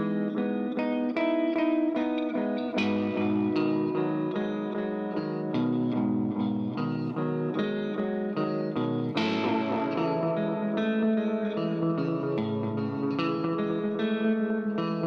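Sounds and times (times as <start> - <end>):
strummed guitar chord: 0.0 - 14.2
electric guitar notes with echoes: 0.0 - 15.0.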